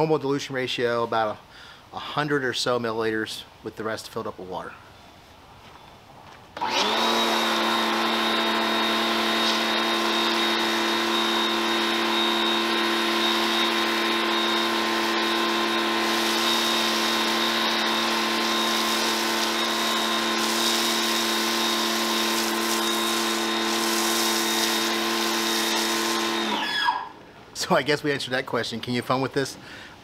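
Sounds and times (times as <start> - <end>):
pressure washer motor hum: 6.6 - 27.0
water spray hissing: 7.3 - 26.4.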